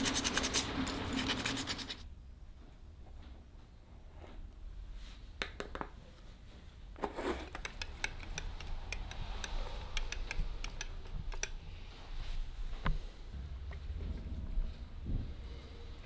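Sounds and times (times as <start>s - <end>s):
stick stirring in plastic cup: 0.0s - 2.0s, 7.0s - 11.6s.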